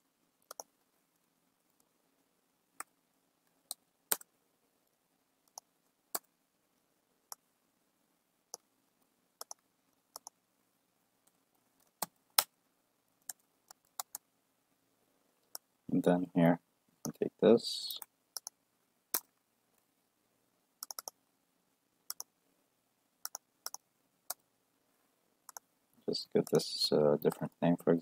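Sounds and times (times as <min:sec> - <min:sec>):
keyboard and mouse clicks: 0:00.4 - 0:00.7, 0:03.7 - 0:04.3, 0:05.4 - 0:06.3, 0:09.4 - 0:10.4, 0:13.2 - 0:14.2, 0:18.0 - 0:19.3, 0:20.8 - 0:21.2, 0:22.1 - 0:22.3, 0:23.2 - 0:24.4.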